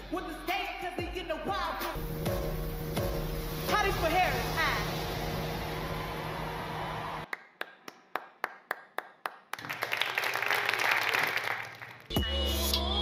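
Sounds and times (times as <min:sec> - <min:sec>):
crowd applause: 0:05.4 - 0:12.1
person clapping: 0:07.3 - 0:12.1.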